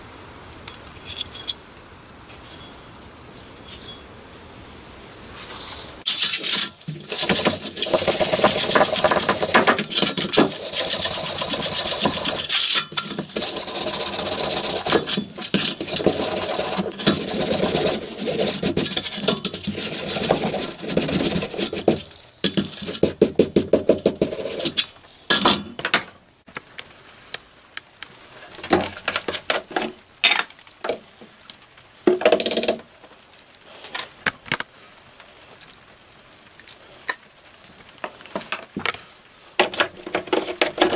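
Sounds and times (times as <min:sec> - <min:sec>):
wire brush scraping metal: 0:06.1 - 0:23.1.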